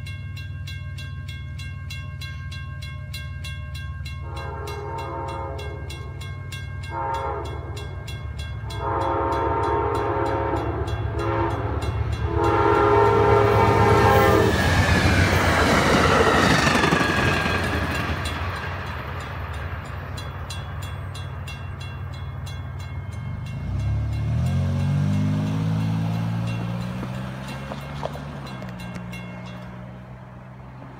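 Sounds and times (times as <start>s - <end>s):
crossing warning bells ringing: 0.0s - 30.9s
train rushing past on rails: 0.0s - 30.9s
train horn blasts: 4.2s - 6.1s, 6.8s - 14.8s.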